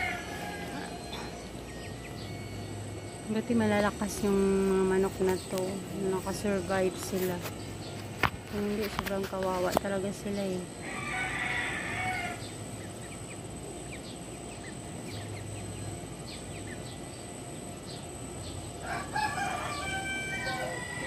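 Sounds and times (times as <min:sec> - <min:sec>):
rooster crowing: 0:00.0 - 0:01.5, 0:10.8 - 0:12.6, 0:18.8 - 0:21.0
chickens clucking: 0:00.0 - 0:21.0
chicks peeping: 0:00.0 - 0:21.0.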